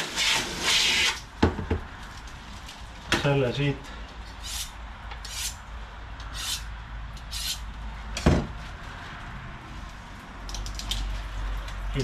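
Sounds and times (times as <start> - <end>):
knife scraping: 4.4 - 5.6, 6.3 - 7.6.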